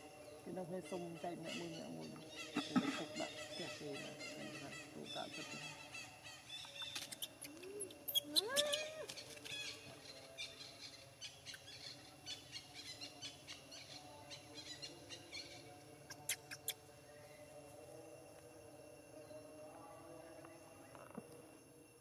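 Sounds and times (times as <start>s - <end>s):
baby monkey whimpering and cooing: 7.1s - 9.6s.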